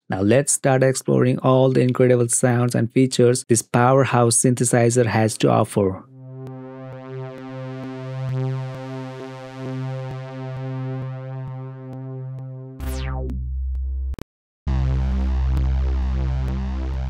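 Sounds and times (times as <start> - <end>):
pulsing synth bass: 6.0 - 17.0
synth bass with falling sweep: 6.1 - 17.0.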